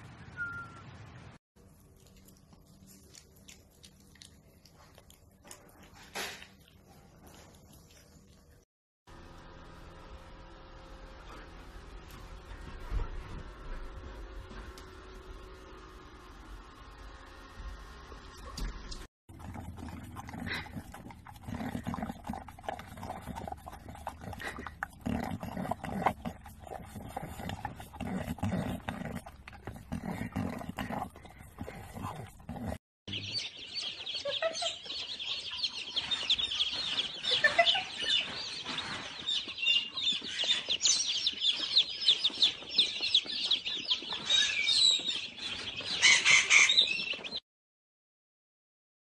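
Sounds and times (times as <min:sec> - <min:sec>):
birds chirping and clucking: 0:19.4 - 0:47.4.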